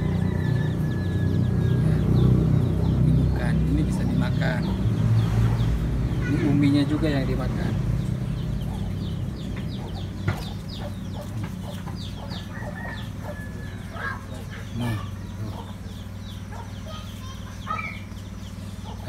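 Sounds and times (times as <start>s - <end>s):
chickens clucking: 0.0s - 19.0s
steady low hum: 0.0s - 19.0s.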